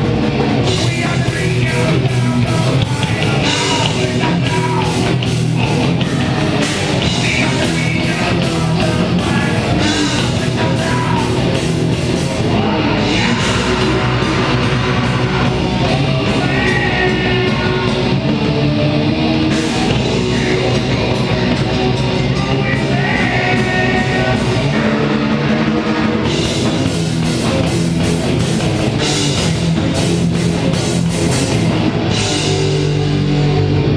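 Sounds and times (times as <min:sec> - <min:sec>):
bass guitar: 0:00.0 - 0:33.9
distorted electric guitars: 0:00.0 - 0:33.9
drum kit: 0:00.0 - 0:33.9
person singing: 0:00.6 - 0:11.6, 0:12.4 - 0:18.3, 0:19.4 - 0:25.7.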